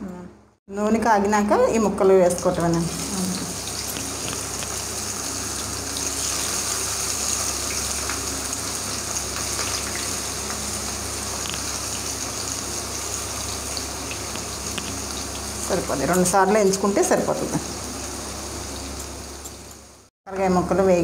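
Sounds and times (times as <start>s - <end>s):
gourd slices deep-frying in oil: 2.3s - 20.1s
oil popping: 3.3s - 5.1s, 9.1s - 15.6s.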